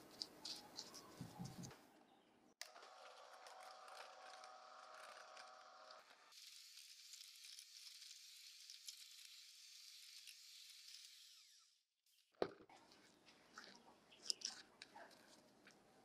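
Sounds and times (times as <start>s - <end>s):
electric hand mixer whine: 2.6s - 11.8s.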